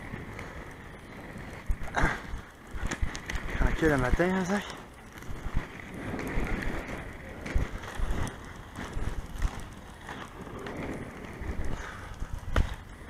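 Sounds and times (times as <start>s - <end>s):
skate wheels rolling on asphalt: 0.0s - 13.0s
wind on microphone: 5.1s - 13.0s.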